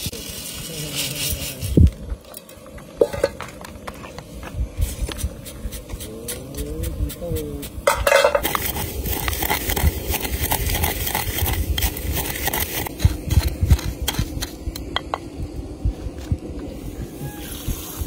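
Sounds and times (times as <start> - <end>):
pestle pounding seeds in mortar: 5.0 - 15.3.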